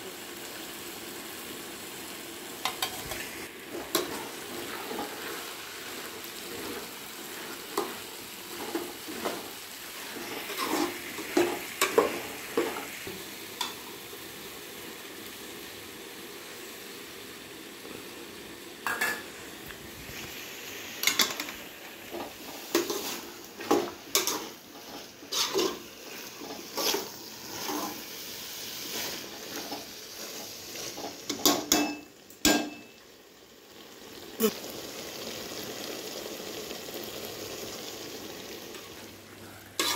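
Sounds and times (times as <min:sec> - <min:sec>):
vegetables sizzling in oil: 0:00.0 - 0:39.9
metal spoon clanking against pot: 0:31.4 - 0:32.9.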